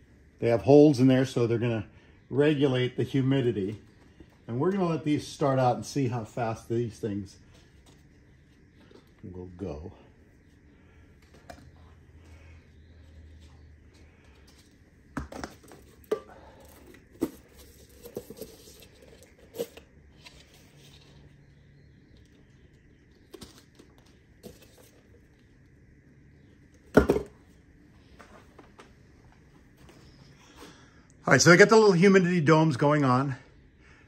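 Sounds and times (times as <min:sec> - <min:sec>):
plastic cups clicking and knocking: 0:14.4 - 0:19.9.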